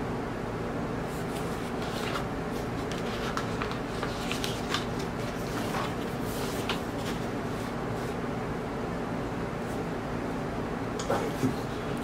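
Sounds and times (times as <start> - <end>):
low background hum: 0.0 - 12.0
glossy paper pages rustling: 1.1 - 8.2.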